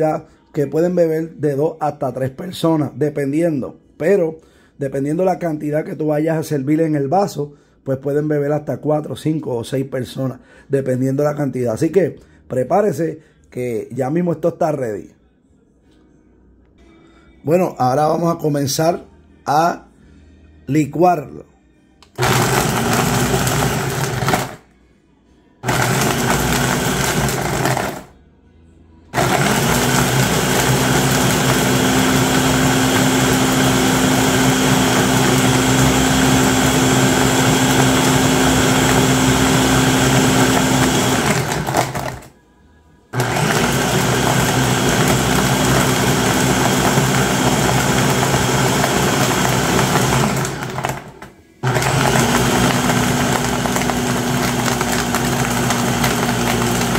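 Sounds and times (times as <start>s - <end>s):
blender motor whirring: 22.0s - 24.6s, 25.6s - 28.1s, 29.2s - 42.3s, 43.2s - 56.9s.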